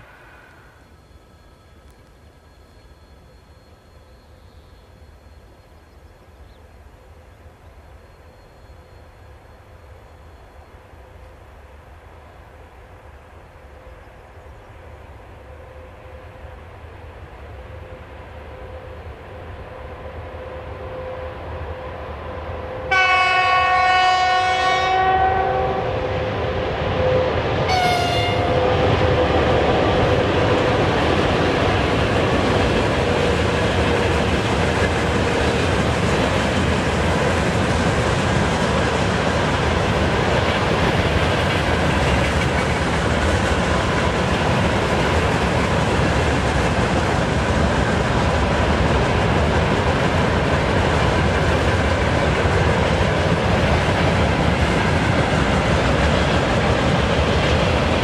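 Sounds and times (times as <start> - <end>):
electric locomotive approaching: 0.0 - 58.0
train horn blasts: 22.6 - 29.4.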